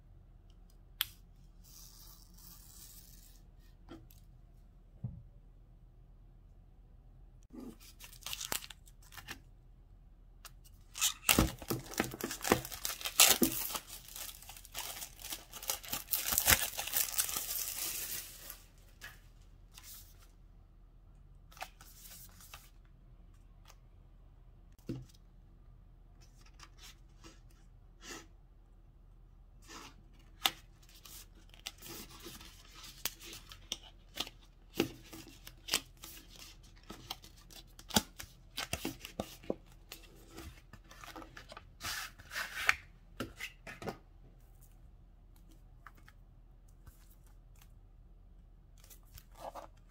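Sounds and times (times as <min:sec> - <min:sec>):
cellophane tearing and crackling: 0:11.0 - 0:18.5.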